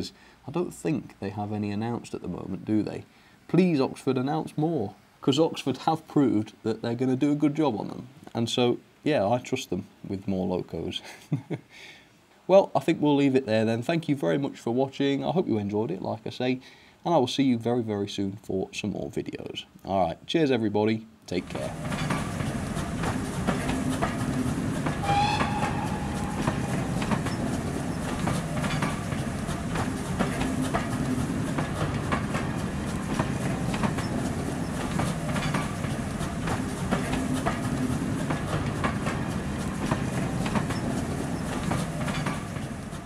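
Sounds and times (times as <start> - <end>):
train rumbling past: 21.3 - 43.0
wheels clacking over rail joints: 21.3 - 43.0
high-pitched tone: 25.0 - 27.5.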